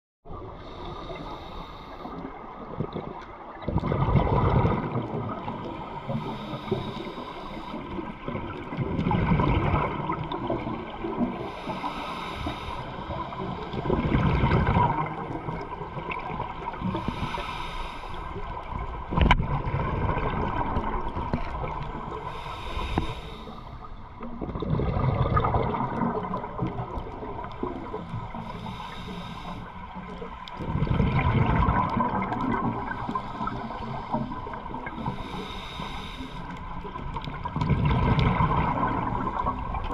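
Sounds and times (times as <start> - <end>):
regulator inhale hiss: 0.5 - 2.5, 5.7 - 8.3, 11.2 - 13.9, 16.8 - 18.7, 22.0 - 24.1, 27.4 - 30.6, 32.7 - 36.9
rumbling exhaust bubbles: 2.7 - 5.8, 24.3 - 28.4, 30.6 - 33.0, 37.0 - 39.9.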